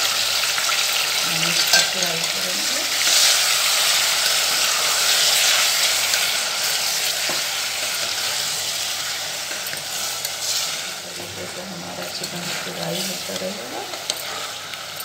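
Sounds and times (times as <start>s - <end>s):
chicken sizzling in hot oil: 0.0s - 15.0s
plastic spatula stirring in pot: 10.0s - 14.8s.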